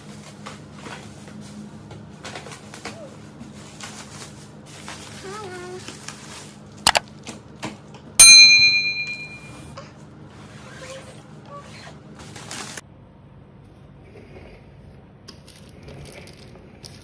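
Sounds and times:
bright bell ding: 8.2 - 9.6.

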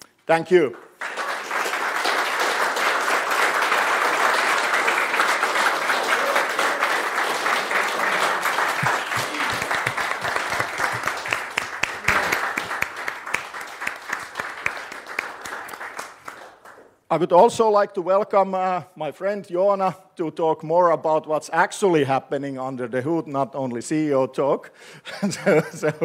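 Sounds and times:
audience applauding: 0.7 - 17.0.

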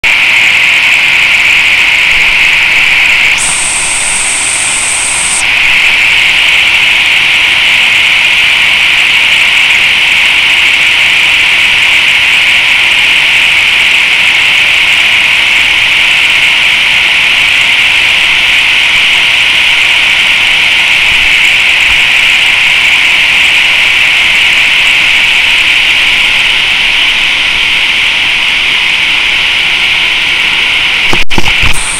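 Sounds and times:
waterfall roaring: 0.1 - 31.9
higher hiss: 1.5 - 7.8, 27.8 - 31.9.

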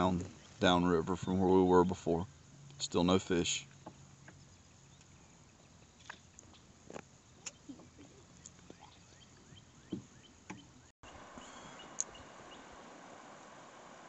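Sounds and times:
steady soft hiss: 0.0 - 14.0
knocks and taps in a canoe: 3.7 - 4.4, 9.8 - 10.7
bird chirps: 7.4 - 12.8.

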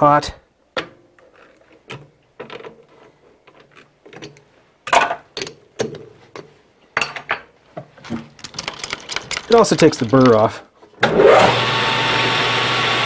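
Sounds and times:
metal tools clicking and clunking: 0.8 - 10.6.

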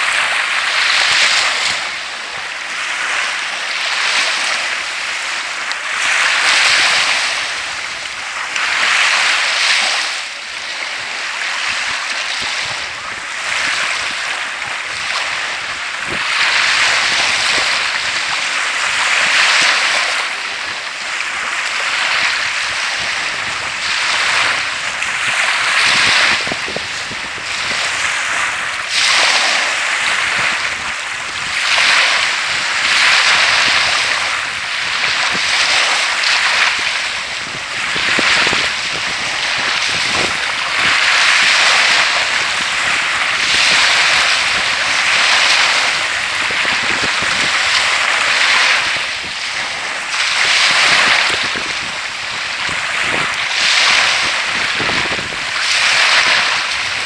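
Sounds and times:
small waves breaking on beach: 0.0 - 57.0.

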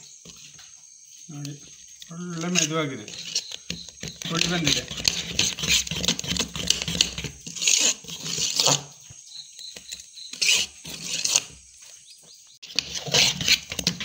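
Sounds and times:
wet batter squelching: 1.4 - 9.0
spoon scraping bowl: 1.6 - 12.0, 12.6 - 14.0.

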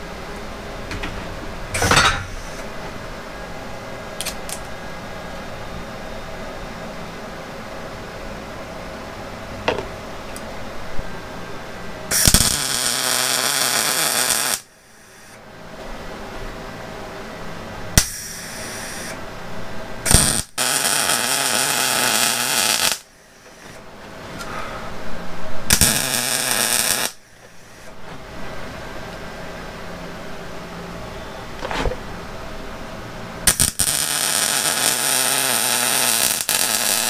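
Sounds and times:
welder arc crackling and sizzling: 0.0 - 2.9, 4.2 - 4.7, 12.0 - 15.4, 17.9 - 19.2, 20.0 - 23.8, 25.5 - 29.3, 33.4 - 37.0.

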